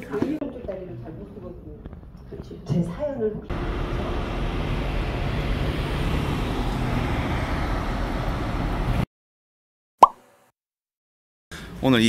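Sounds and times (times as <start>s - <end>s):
road traffic noise: 3.5s - 9.1s.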